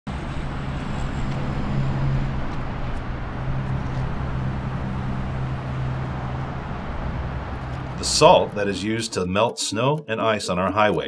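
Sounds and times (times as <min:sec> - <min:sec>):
tyre and road noise: 0:00.1 - 0:09.0
vehicle engine droning: 0:00.1 - 0:09.0.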